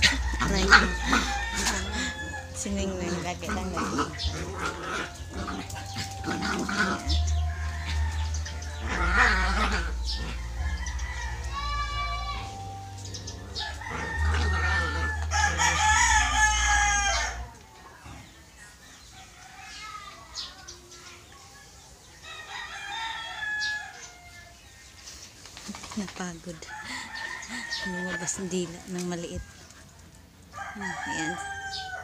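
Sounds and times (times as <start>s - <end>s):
rooster crowing: 0.0s - 2.6s, 7.0s - 12.8s, 13.5s - 17.5s, 22.2s - 24.6s, 26.7s - 28.6s, 30.5s - 32.0s.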